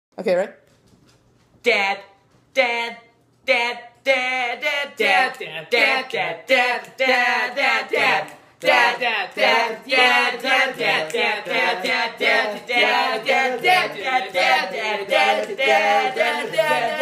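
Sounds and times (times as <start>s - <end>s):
boys singing a cappella: 3.5s - 17.0s.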